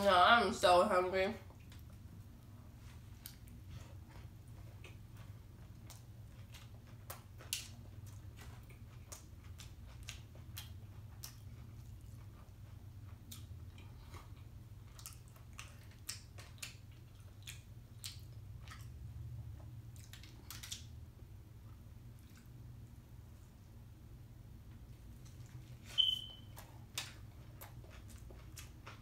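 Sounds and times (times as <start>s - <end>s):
person chewing with wet mouth clicks: 3.2s - 3.6s, 4.6s - 19.0s, 19.6s - 21.0s, 25.2s - 29.0s.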